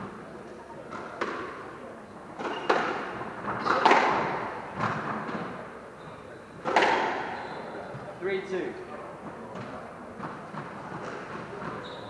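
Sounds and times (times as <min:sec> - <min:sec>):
squash ball striking racket and walls: 0:00.9 - 0:01.7, 0:02.4 - 0:05.6, 0:06.6 - 0:07.4.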